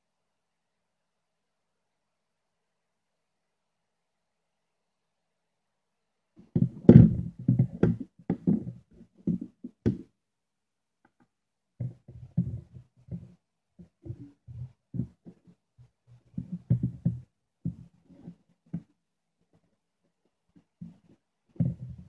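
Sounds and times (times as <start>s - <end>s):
objects knocking on wooden table: 16.4s - 17.8s.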